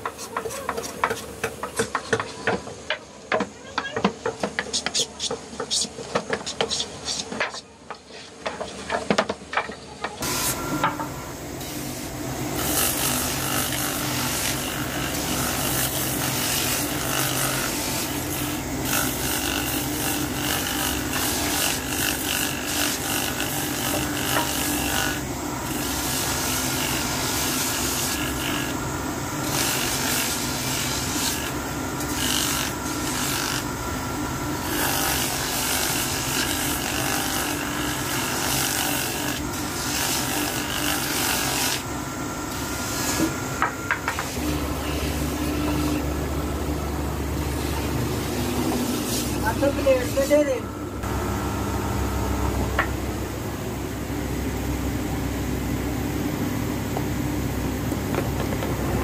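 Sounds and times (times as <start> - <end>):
wood rasping on sanding drum: 0.0 - 2.6, 4.0 - 8.9, 12.6 - 28.8, 29.4 - 33.7, 34.6 - 41.9
hand plane shaving wood: 4.5 - 8.9, 29.4 - 33.7, 34.6 - 41.9
drum sanding machine motor hum: 10.1 - 59.0.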